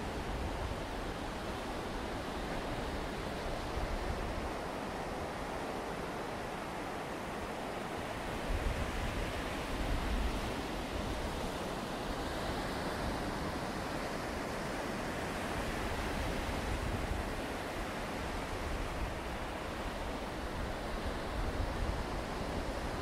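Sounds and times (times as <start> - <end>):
sea surf on shore: 0.0 - 23.0
wind: 0.0 - 23.0
wind buffets on microphone: 8.1 - 23.0.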